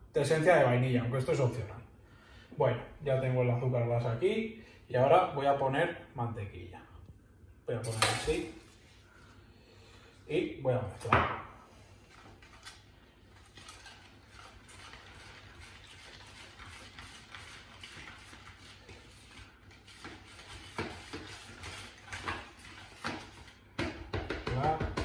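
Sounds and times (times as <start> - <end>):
utensil scraping a bowl: 13.3 - 23.6.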